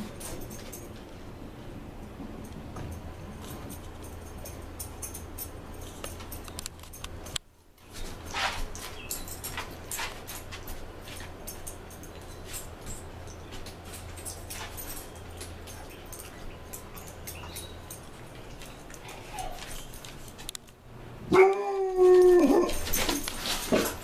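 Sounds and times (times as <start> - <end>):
faint ticks and rustling: 2.0 - 20.8
dog whining: 19.0 - 20.0, 21.3 - 23.3.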